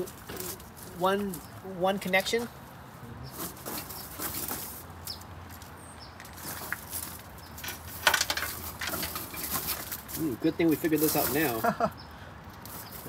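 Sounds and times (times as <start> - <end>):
steel cable scraping on tyre: 6.3 - 11.8.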